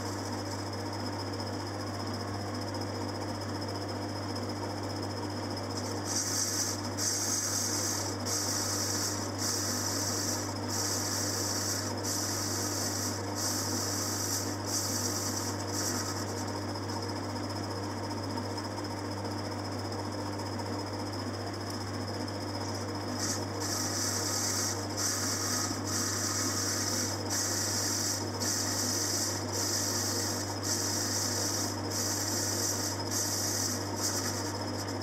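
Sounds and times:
lathe motor hum: 23.2s - 35.0s.

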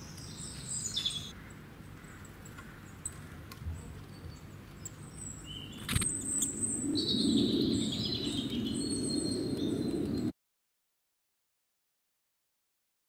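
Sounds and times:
faint high bird chirps: 0.0s - 1.4s
low background noise: 0.0s - 10.2s.

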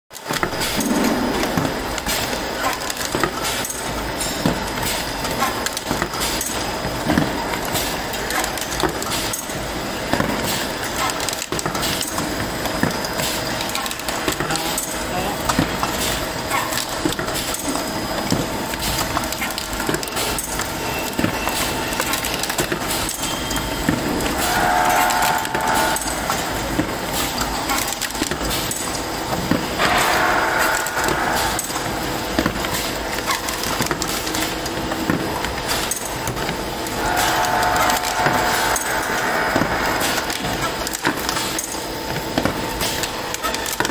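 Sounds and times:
folder-gluer machine running: 23.7s - 43.1s.

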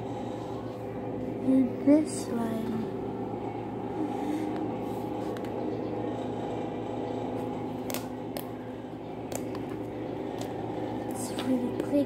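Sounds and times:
background hum: 0.0s - 12.0s.

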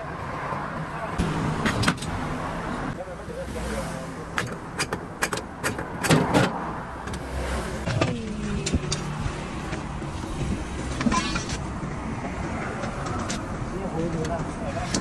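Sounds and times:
road noise: 0.0s - 15.0s
vehicle engine: 0.0s - 15.0s.

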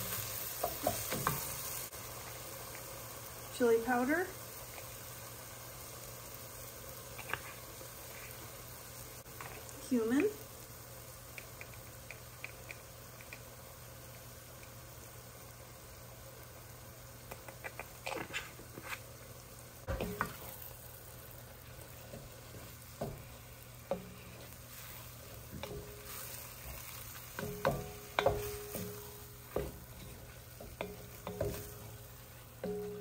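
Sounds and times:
food sizzling in pot: 0.0s - 33.0s
wooden spatula scraping pot: 21.9s - 33.0s.

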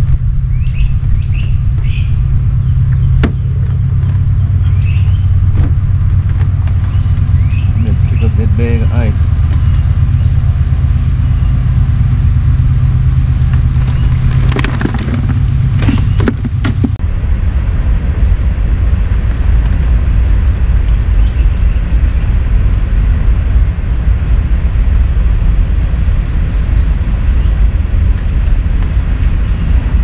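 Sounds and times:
wind buffeting microphone: 0.0s - 30.0s
clicks and knocks: 13.5s - 17.0s.

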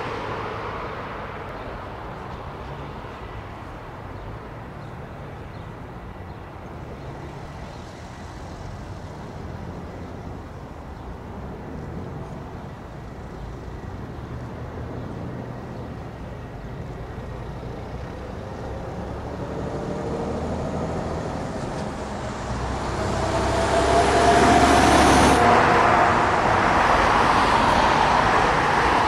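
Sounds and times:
jet engines idling: 8.2s - 29.0s.

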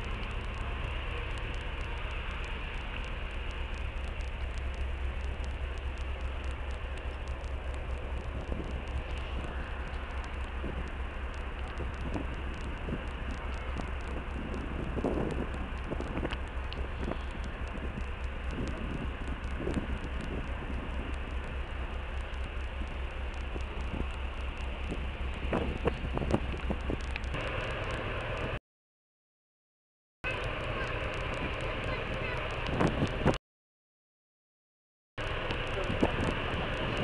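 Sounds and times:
ferry machinery rumble: 0.0s - 28.6s, 30.2s - 33.4s, 35.2s - 37.0s
wind-like rush: 7.7s - 28.6s, 31.2s - 33.4s.

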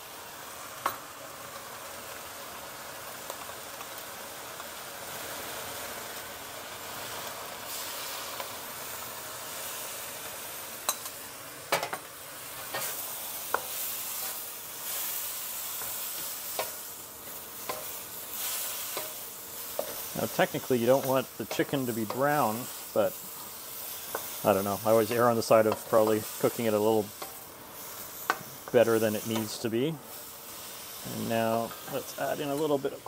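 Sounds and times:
food sizzling in a wok: 0.0s - 33.0s
utensils knocking and scraping wok: 10.9s - 14.4s, 15.7s - 29.7s.

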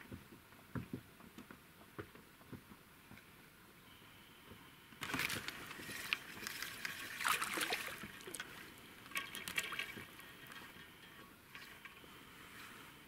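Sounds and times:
fish splashing at water surface: 5.1s - 10.6s.

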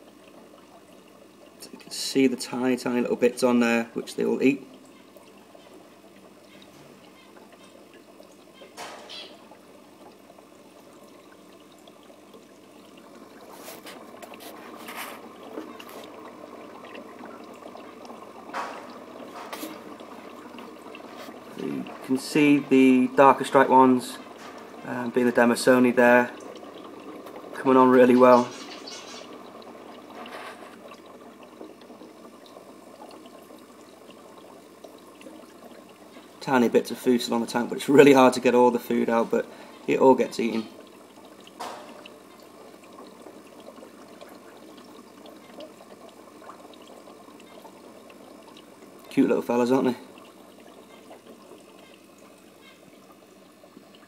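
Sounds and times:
aquarium filter bubbling: 0.0s - 54.0s.

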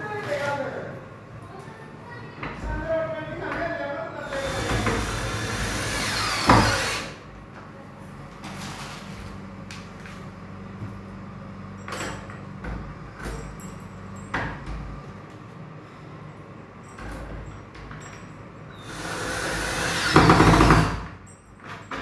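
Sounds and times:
cordless drill running: 4.3s - 7.2s, 18.8s - 21.0s.

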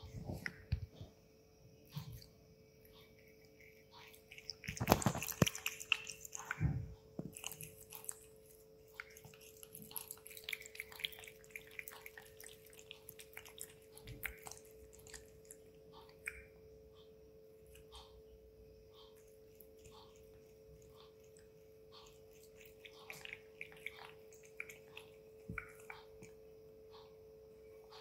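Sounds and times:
faint steady hum: 0.0s - 28.0s
cat lapping water from metal bowl: 7.3s - 15.6s, 19.6s - 26.3s.

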